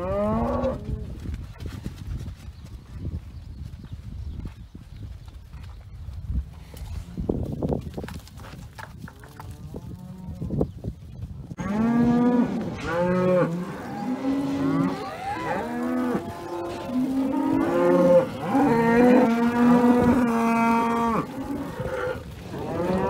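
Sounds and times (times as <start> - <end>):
cows mooing: 0.0 - 1.0, 11.6 - 23.0.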